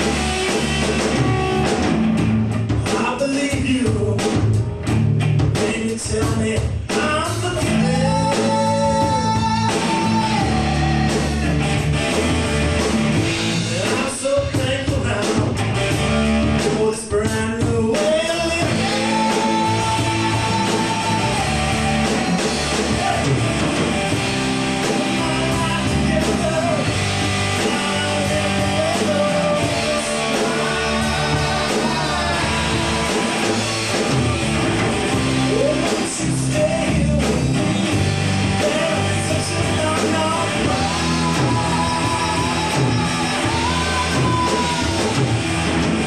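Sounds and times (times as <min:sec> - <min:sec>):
bass guitar: 0:00.0 - 0:46.0
drum kit: 0:00.0 - 0:46.0
electric guitar: 0:00.0 - 0:46.0
person singing: 0:05.6 - 0:11.9, 0:16.6 - 0:23.4, 0:24.7 - 0:33.7, 0:35.3 - 0:45.4.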